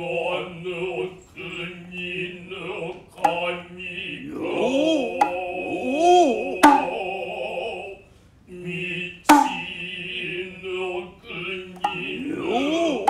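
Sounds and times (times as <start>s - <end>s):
men chanting: 0.0s - 13.0s
swooping vocal call: 0.0s - 13.0s
shoulder drum strikes: 5.1s - 7.2s, 9.3s - 9.8s.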